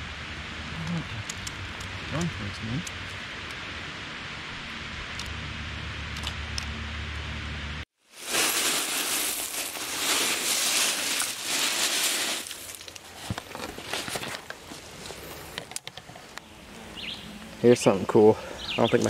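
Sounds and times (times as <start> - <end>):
footsteps crunching dry leaves: 8.0 - 15.4
brushing through undergrowth: 8.0 - 16.3
camera rustling against clothing: 8.2 - 16.4.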